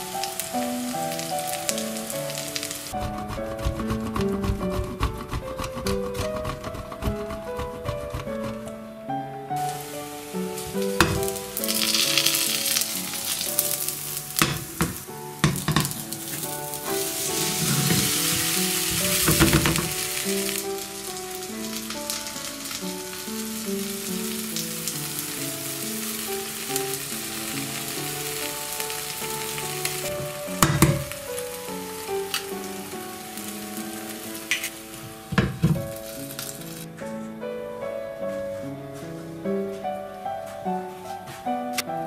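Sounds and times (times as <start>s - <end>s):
pancake sizzling in a pan: 0.0s - 4.2s, 9.6s - 36.9s
background music: 0.0s - 42.0s
sharp knocks: 3.0s - 8.8s.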